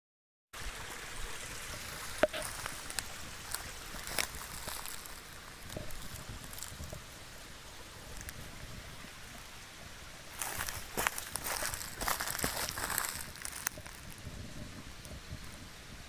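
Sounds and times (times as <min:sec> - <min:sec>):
steady rushing hiss: 0:00.6 - 0:16.0
footsteps snapping dry twigs: 0:02.3 - 0:07.0, 0:10.4 - 0:14.1.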